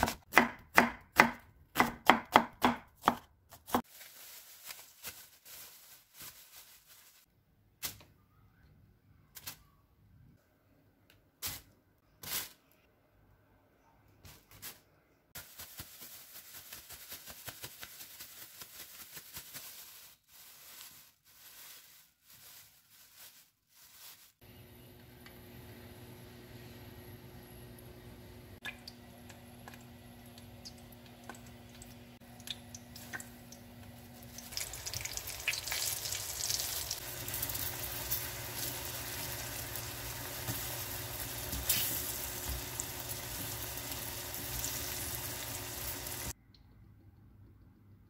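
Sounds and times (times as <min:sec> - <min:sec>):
knife chopping on wooden board: 0:00.0 - 0:03.8
plastic bag rustling: 0:03.8 - 0:07.3, 0:11.4 - 0:12.8, 0:14.2 - 0:24.4.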